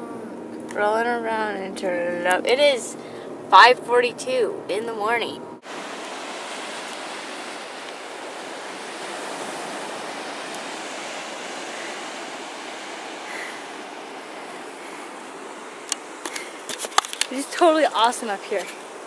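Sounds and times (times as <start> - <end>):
ocean surf breaking on shore: 5.6 - 19.0.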